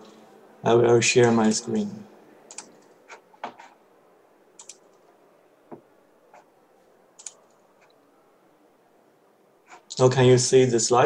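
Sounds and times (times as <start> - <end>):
mouse and keyboard clicks: 2.5 - 3.7, 4.6 - 5.0, 7.2 - 8.0.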